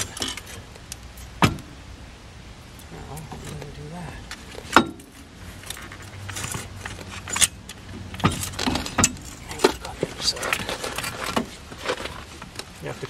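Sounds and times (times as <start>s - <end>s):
metallic knocks and rattles: 4.4s - 12.1s.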